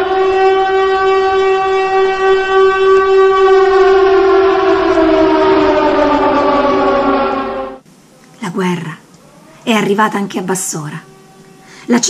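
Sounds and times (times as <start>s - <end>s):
air-raid siren wailing: 0.0s - 7.8s, 10.6s - 12.0s.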